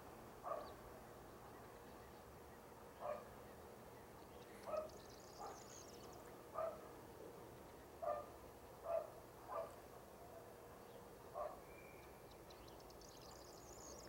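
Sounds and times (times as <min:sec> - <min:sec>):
faint steady hum: 0:00.0 - 0:14.0
dog barking: 0:00.4 - 0:00.7, 0:03.0 - 0:03.3, 0:04.7 - 0:05.7, 0:06.6 - 0:06.8, 0:08.0 - 0:09.8, 0:11.4 - 0:11.6.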